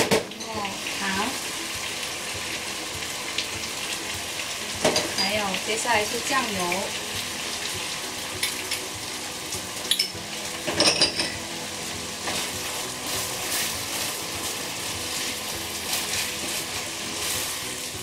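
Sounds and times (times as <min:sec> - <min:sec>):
rice sizzling in frying pan: 0:00.0 - 0:18.0
wooden spatula scraping pan: 0:12.2 - 0:17.6.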